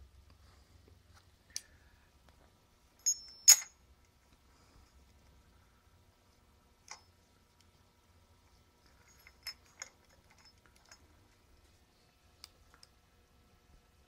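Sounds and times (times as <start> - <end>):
faint metal clicks and clinks: 3.0 - 4.2, 8.8 - 11.4.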